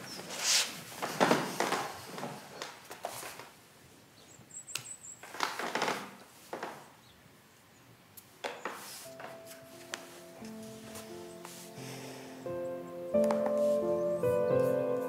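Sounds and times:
clothing rustling: 0:08.6 - 0:12.0, 0:13.2 - 0:15.0.

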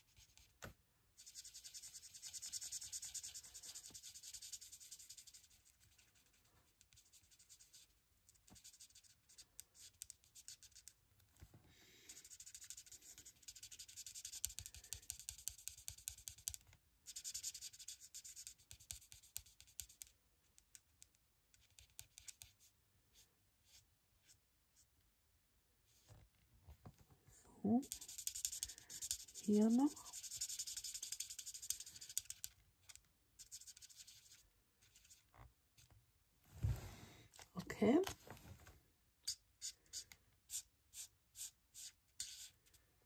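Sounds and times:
marker scratching on card: 0:00.0 - 0:00.6, 0:01.2 - 0:11.0, 0:12.1 - 0:20.9, 0:21.5 - 0:24.8, 0:27.8 - 0:35.9, 0:39.2 - 0:42.8.

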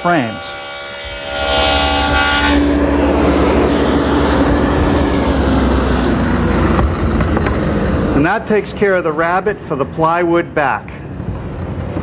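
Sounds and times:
table saw motor whine: 0:00.0 - 0:08.2
saw cutting wood: 0:00.0 - 0:08.7.

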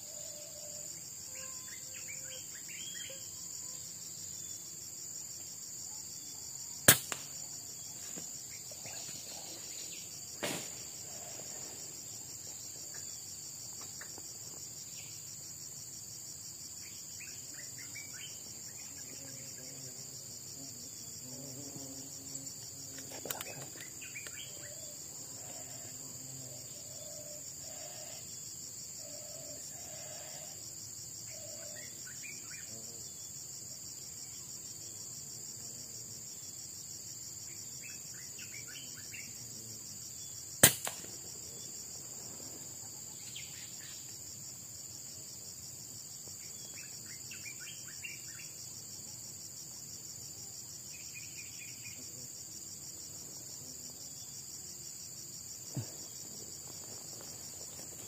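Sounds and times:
insect chorus: 0:00.0 - 0:58.0
air rifle shot: 0:06.9 - 0:07.3, 0:10.4 - 0:10.8, 0:40.6 - 0:41.2.

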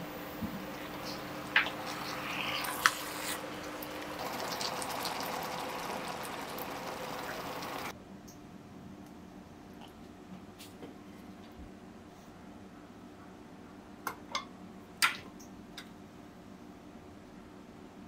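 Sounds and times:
sauce simmering in a pan: 0:00.8 - 0:07.9.

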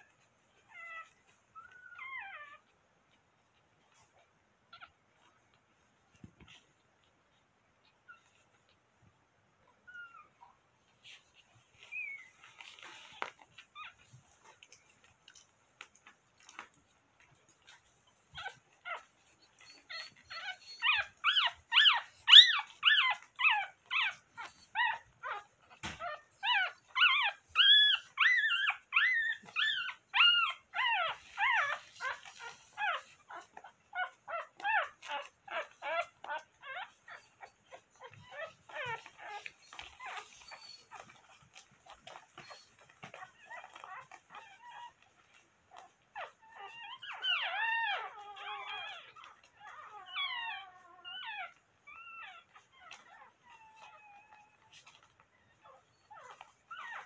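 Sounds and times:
puppies squealing: 0:18.4 - 0:57.0.

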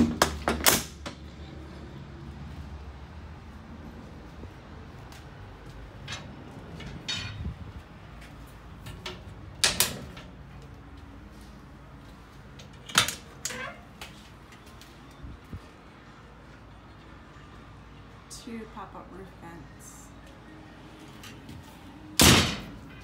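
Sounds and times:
metal gates and latches clanking: 0:06.0 - 0:07.6, 0:08.8 - 0:10.4, 0:12.6 - 0:14.6.

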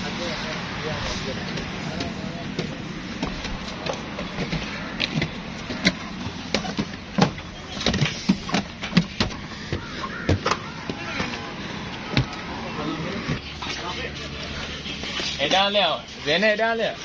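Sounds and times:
footsteps on stairs: 0:01.5 - 0:12.5.

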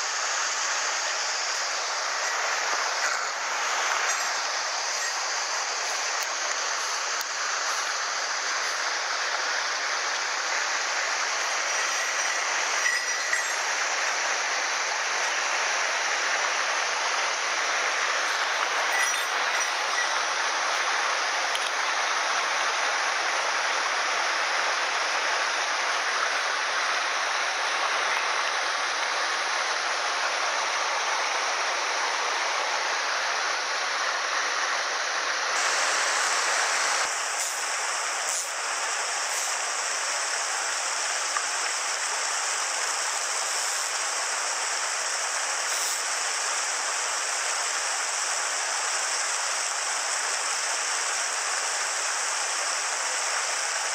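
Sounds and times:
stream rushing over rocks: 0:00.0 - 0:53.9.

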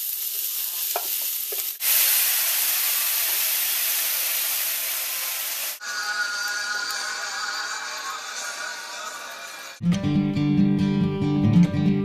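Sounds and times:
onions frying in a pan: 0:00.0 - 0:09.7
loud hiss of liquid boiling off: 0:00.0 - 0:09.8
guitar music: 0:09.4 - 0:12.0.

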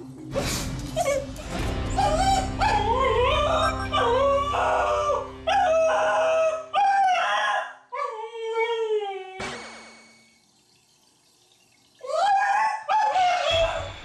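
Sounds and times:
dog howling and wailing: 0:01.9 - 0:09.4.

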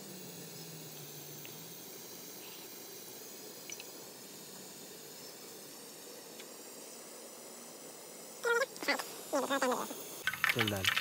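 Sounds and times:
steady hiss: 0:00.0 - 0:11.0
batter squishing: 0:10.2 - 0:11.0.

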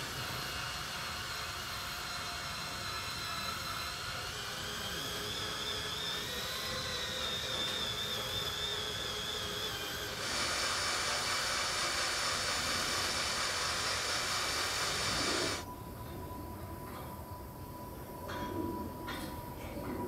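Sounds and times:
cordless drill whining: 0:00.0 - 0:15.6.

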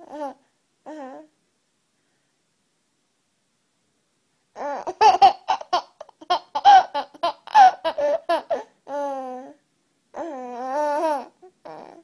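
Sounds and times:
baby giggling: 0:04.6 - 0:08.7.

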